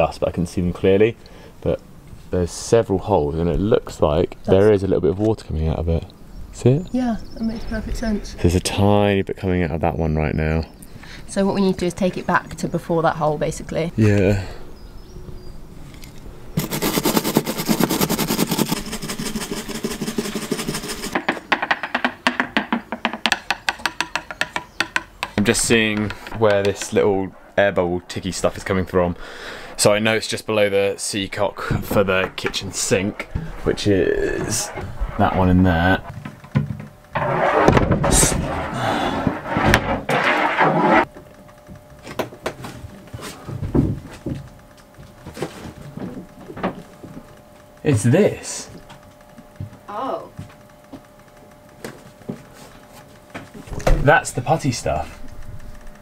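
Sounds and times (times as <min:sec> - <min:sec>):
wood scraping and knocking: 0:16.0 - 0:29.1, 0:31.6 - 0:41.2
wire brush scrubbing fibreglass: 0:16.6 - 0:21.2, 0:32.2 - 0:36.1
sharp evenly spaced ticks: 0:16.6 - 0:21.3, 0:22.8 - 0:30.4, 0:46.9 - 0:49.9, 0:50.5 - 0:53.4
clicks and taps of handling: 0:21.2 - 0:27.0.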